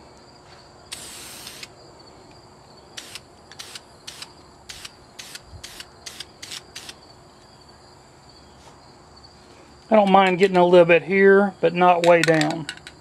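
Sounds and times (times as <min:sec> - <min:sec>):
spray can hissing: 0:00.9 - 0:01.7.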